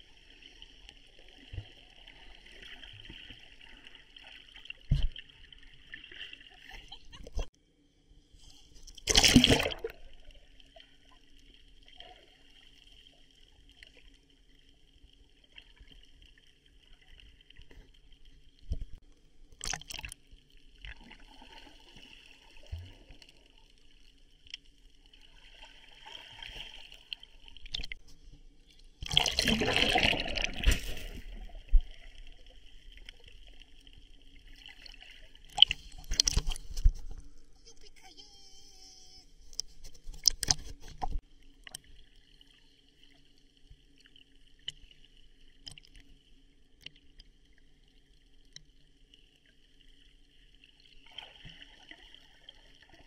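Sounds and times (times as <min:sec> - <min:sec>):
water sloshing and trickling: 0:15.0 - 0:37.6
water splashing rushes: 0:29.0 - 0:31.6.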